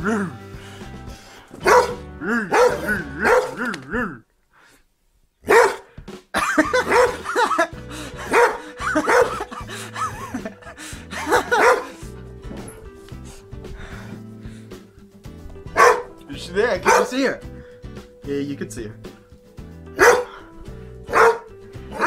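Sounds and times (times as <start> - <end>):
dog barking: 1.6 - 3.6, 5.4 - 5.9, 6.6 - 7.6, 8.2 - 9.5, 11.3 - 12.0, 15.7 - 16.2, 16.8 - 17.1, 20.0 - 20.4, 21.1 - 22.0.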